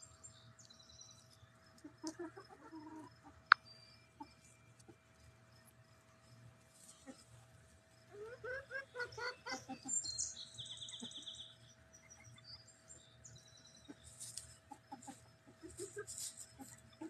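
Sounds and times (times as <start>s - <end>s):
hens clucking: 1.8s - 3.5s, 8.1s - 10.0s, 13.9s - 17.0s.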